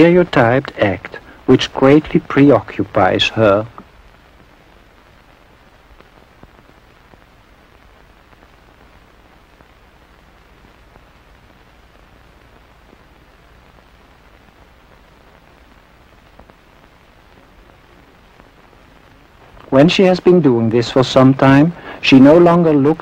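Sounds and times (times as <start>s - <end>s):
old film soundtrack hiss: 0.0s - 23.0s.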